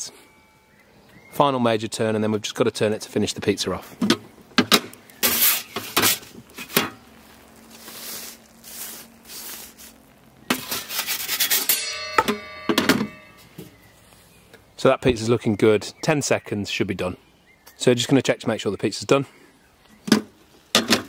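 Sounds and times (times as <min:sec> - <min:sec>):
pizza peel scraping oven stone: 0:05.2 - 0:07.0, 0:07.7 - 0:12.4.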